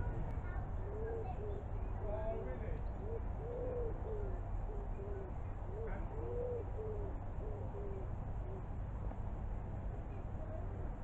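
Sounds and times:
steady low rumble: 0.0s - 11.0s
pigeon cooing: 0.8s - 1.6s, 3.0s - 8.7s.

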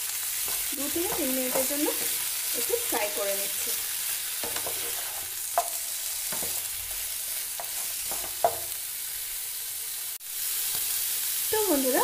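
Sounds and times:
chicken sizzling in a frying pan: 0.0s - 12.0s
wooden spatula scraping a pan: 4.4s - 8.8s.

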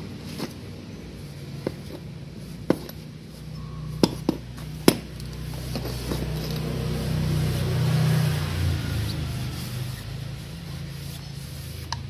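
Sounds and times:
low motor hum: 0.0s - 12.0s.

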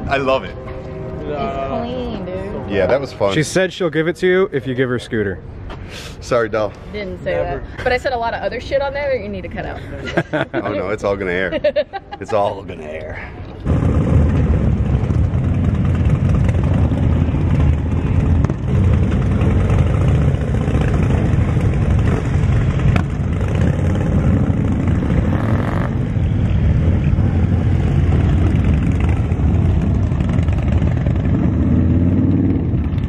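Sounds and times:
motorcycles riding past: 8.4s - 33.0s.

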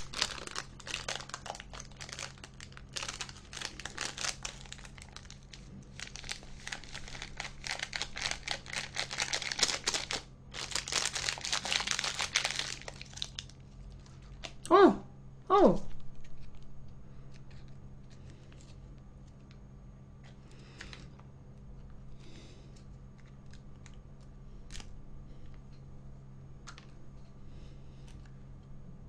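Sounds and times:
sauce packets crinkling: 0.0s - 14.6s.

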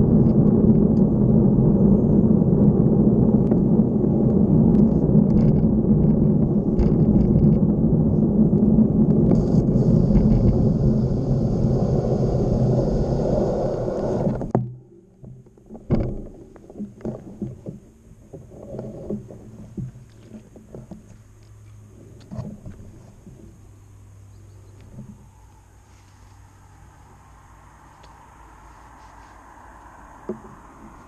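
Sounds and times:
wind rushing over microphone: 0.0s - 14.6s.

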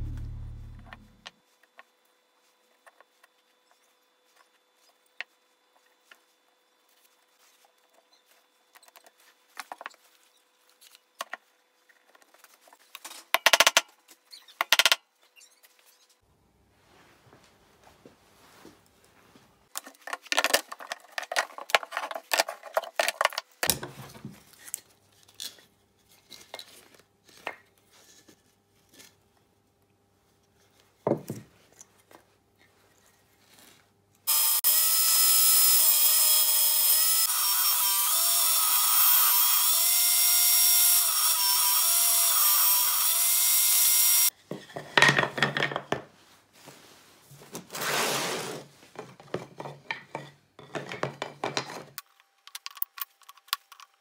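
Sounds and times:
power tool cutting wood: 34.3s - 44.3s.

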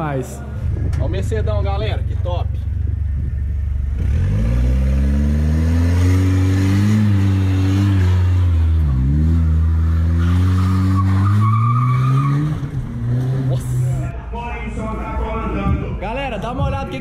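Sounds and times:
car engine revving: 0.6s - 14.1s.

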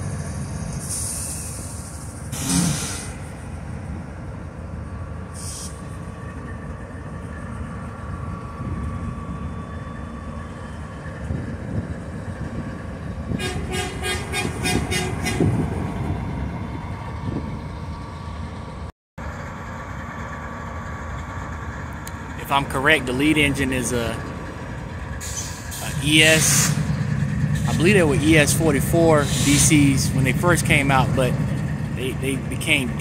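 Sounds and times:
diesel locomotive idling: 0.0s - 33.0s.

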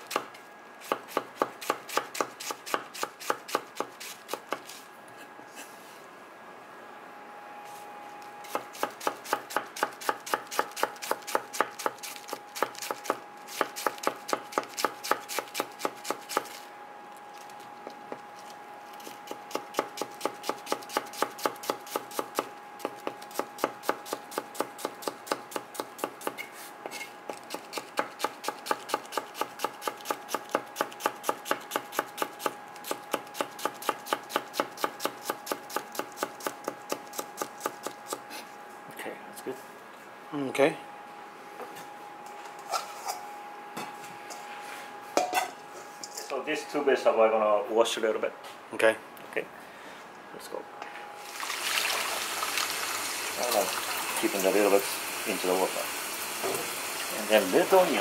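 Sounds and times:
knife slicing cabbage on board: 0.0s - 5.7s, 8.5s - 16.6s, 19.0s - 38.2s.

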